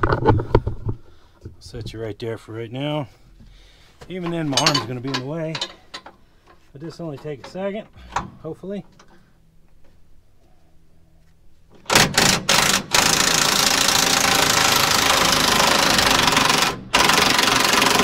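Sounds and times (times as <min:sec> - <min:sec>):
impact wrench hammering: 0:11.9 - 0:18.0.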